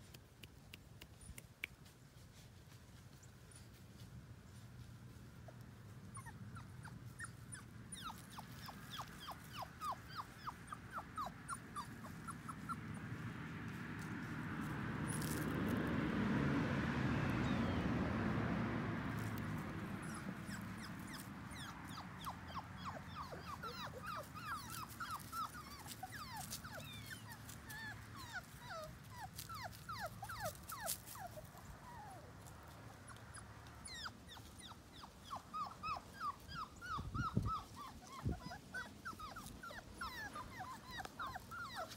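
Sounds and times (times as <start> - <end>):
puppies whimpering: 6.1 - 13.3, 19.2 - 41.9.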